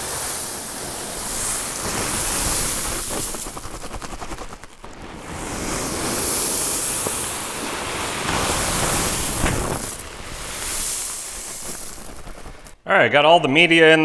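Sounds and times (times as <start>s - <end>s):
small stones pouring into bowl: 0.0s - 12.8s.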